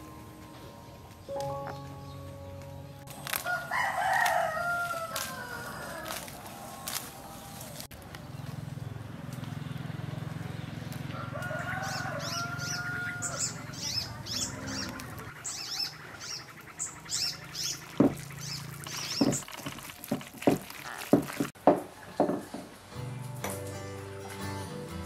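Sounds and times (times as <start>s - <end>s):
small birds chirping: 0.0s - 22.6s
hands slapping raw meat: 4.2s - 5.4s.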